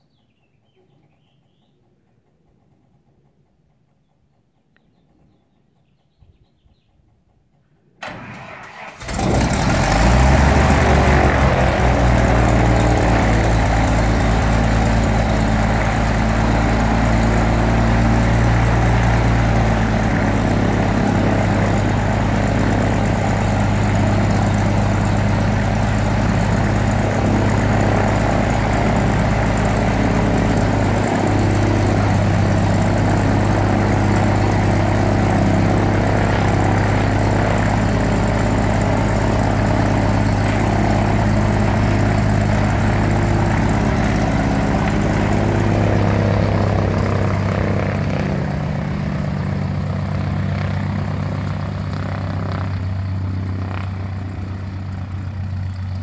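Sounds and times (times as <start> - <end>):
engine starter cranking: 8.0 - 10.6
aircraft engine idling: 8.0 - 56.0.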